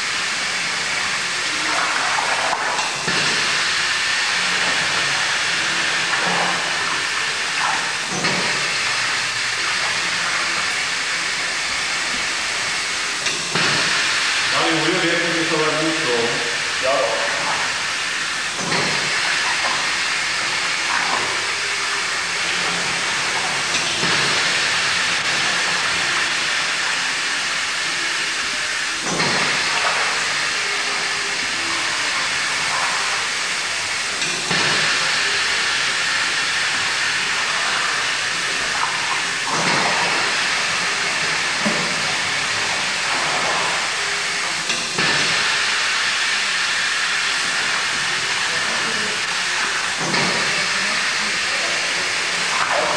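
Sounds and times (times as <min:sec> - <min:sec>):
stirrer churning curds hissing rush: 0:00.0 - 0:52.9.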